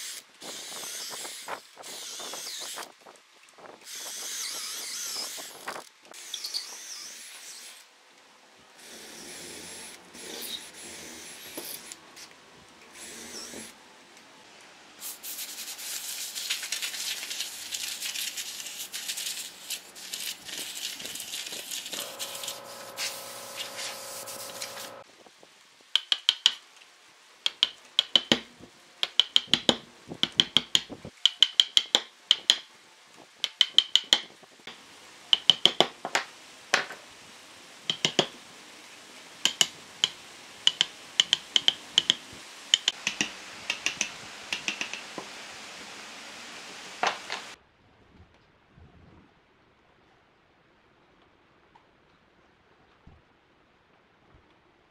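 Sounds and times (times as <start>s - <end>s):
hand tool scraping wood: 21.9s - 25.0s
mallet knocking chisel: 35.4s - 35.9s, 39.4s - 45.1s.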